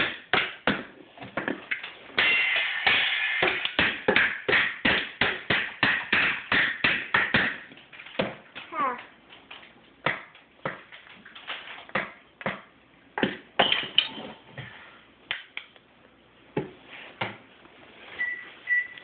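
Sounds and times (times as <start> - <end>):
stick banging on bowls: 1.7 - 8.4
short electronic beeps: 18.2 - 19.0.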